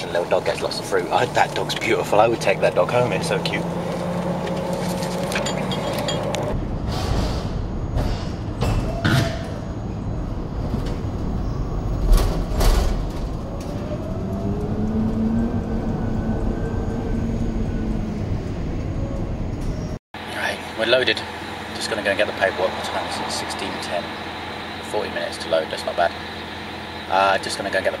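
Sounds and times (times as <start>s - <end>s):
steady low rumble: 4.6s - 20.0s.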